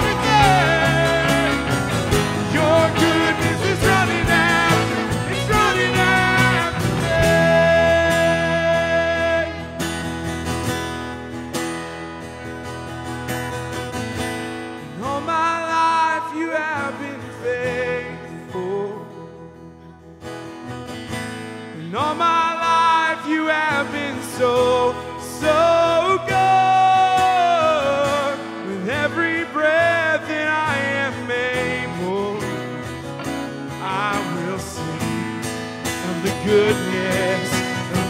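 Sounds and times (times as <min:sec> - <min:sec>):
drums: 0:00.0 - 0:09.0
second voice singing: 0:00.0 - 0:09.8
man singing lead: 0:00.0 - 0:10.2, 0:14.8 - 0:19.3, 0:21.7 - 0:38.0
strummed acoustic guitar: 0:00.0 - 0:38.0.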